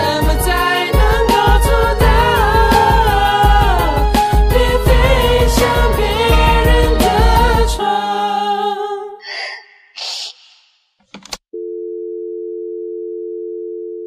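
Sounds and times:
short hissing bursts: 9.3 - 10.8
sharp click: 11.0 - 11.4
telephone dial tone: 11.6 - 14.0.

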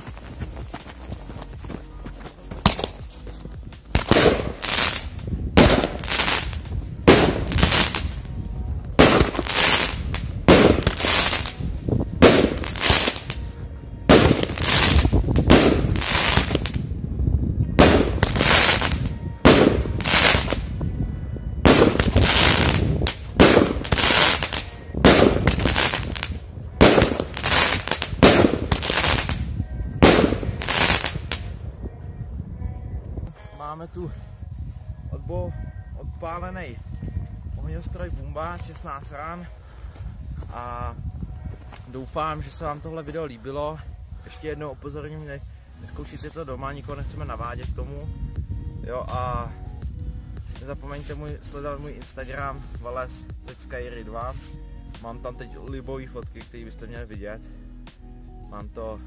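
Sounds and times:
firework bangs: 3.9 - 8.1, 9.0 - 11.5, 12.2 - 13.4, 14.1 - 16.8, 17.8 - 20.6, 21.7 - 29.4, 30.0 - 31.4.

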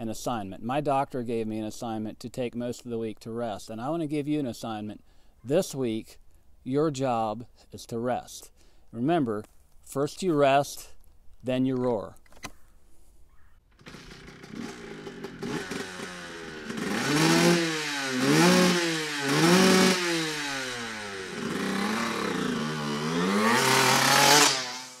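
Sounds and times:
dirt bike engine revving: 13.7 - 25.0.

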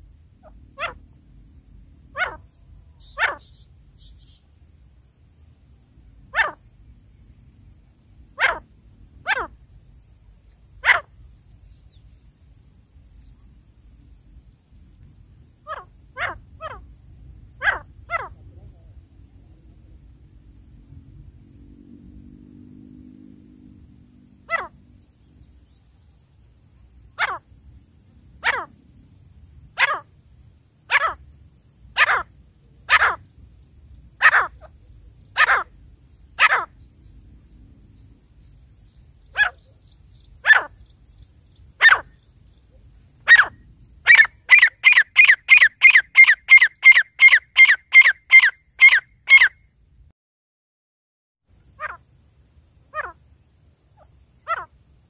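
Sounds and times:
francolin calling: 2.1 - 4.6, 8.3 - 12.2, 15.6 - 17.0, 24.4 - 28.9, 29.7 - 49.6, 51.5 - 52.1, 52.9 - 53.2, 53.9 - 54.8.

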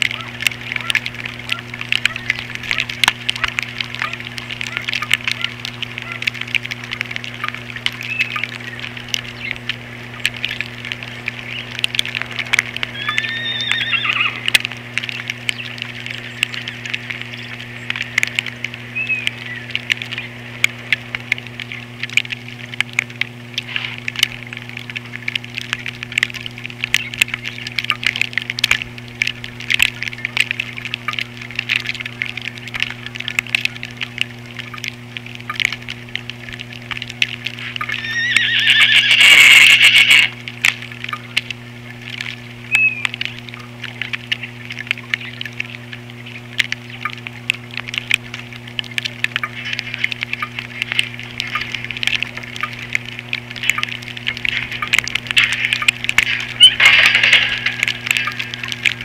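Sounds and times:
small clicks and taps of feeding: 0.0 - 59.0
steady electrical hum: 0.0 - 59.0
bird calls: 0.1 - 6.3, 7.3 - 11.8, 12.8 - 18.2, 18.8 - 20.4, 42.4 - 47.2, 54.7 - 58.7.

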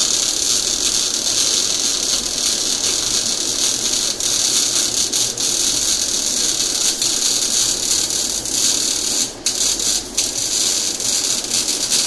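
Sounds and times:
welding arc crackling hiss: 0.0 - 12.0.

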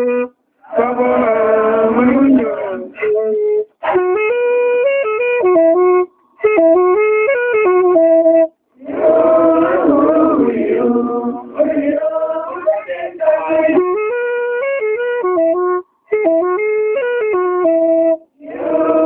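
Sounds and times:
voices singing: 0.6 - 4.2, 8.8 - 14.2, 18.4 - 19.0.

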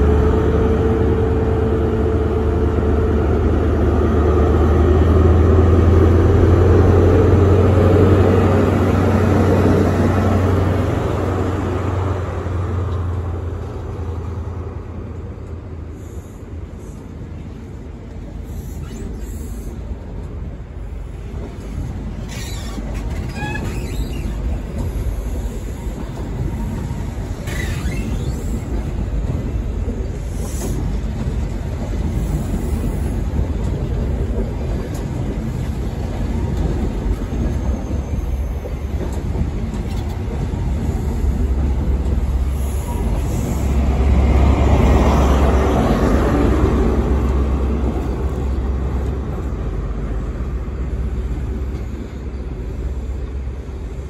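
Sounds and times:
train coaches rumbling past: 0.0 - 54.0
high wheel squeals: 22.3 - 24.6, 27.4 - 28.7.

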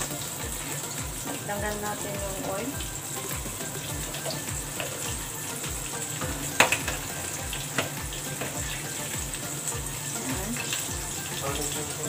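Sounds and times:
fish frying in oil: 0.0 - 12.0
oil spattering pop: 6.2 - 8.6.

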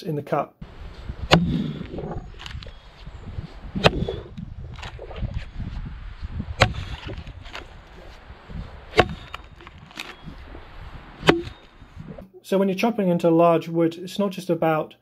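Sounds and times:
axe chopping into log: 1.2 - 2.6, 3.8 - 4.2, 6.6 - 7.7, 8.9 - 10.2, 11.2 - 11.6.

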